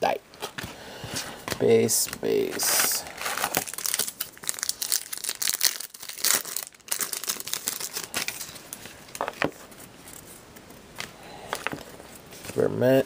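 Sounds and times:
wrapper tearing and crinkling: 2.6s - 9.2s.

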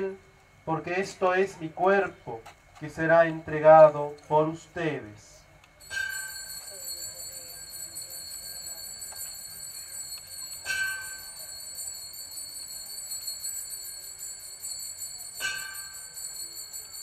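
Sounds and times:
altar bells jingling: 5.8s - 17.0s.

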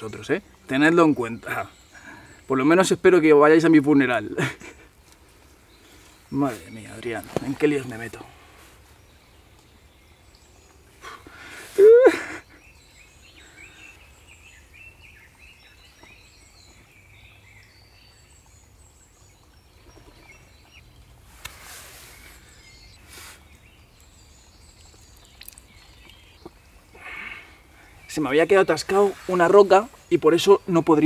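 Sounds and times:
faint birdsong: 0.0s - 31.0s
hissing breaths: 10.9s - 12.6s, 21.3s - 23.6s, 26.8s - 28.1s.

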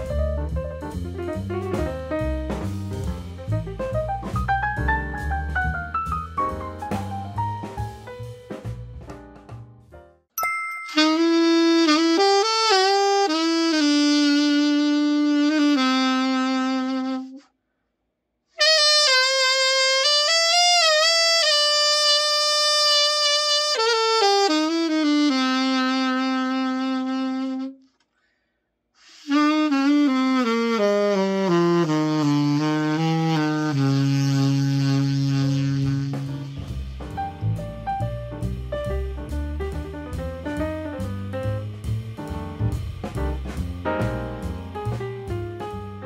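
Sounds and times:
alto saxophone solo: 10.9s - 17.5s, 18.6s - 28.0s, 29.0s - 37.6s.

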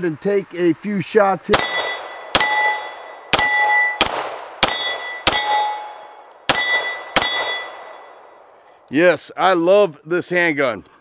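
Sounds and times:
pistol shots: 1.5s - 8.3s
steel targets ringing: 1.6s - 8.4s.

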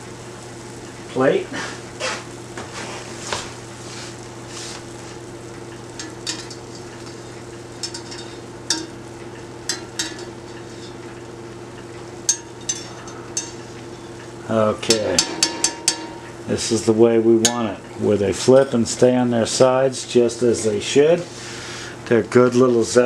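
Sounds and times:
dough sizzling in hot oil: 0.0s - 23.0s
low hum: 5.3s - 18.1s
skimmer clinking against pot: 6.0s - 11.2s, 12.2s - 16.6s, 17.4s - 17.9s.

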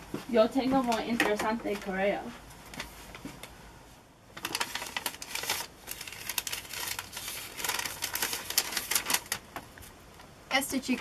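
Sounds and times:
paper rustling and crinkling: 4.3s - 10.0s.

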